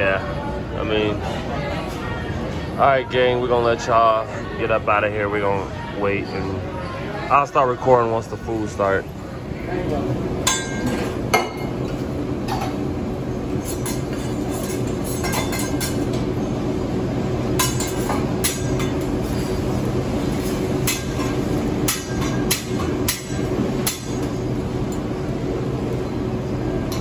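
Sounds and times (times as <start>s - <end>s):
steady low hum: 8.1s - 27.0s.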